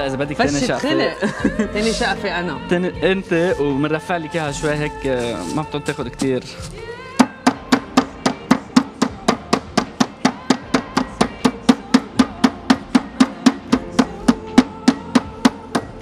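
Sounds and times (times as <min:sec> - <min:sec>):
meat mallet pounding: 0:07.2 - 0:16.0.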